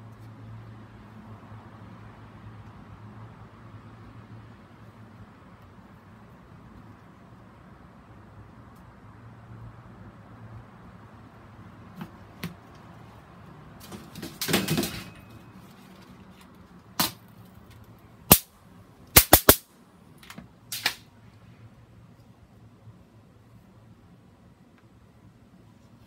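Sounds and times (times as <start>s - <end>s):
rustling and handling noise: 11.9s - 18.1s.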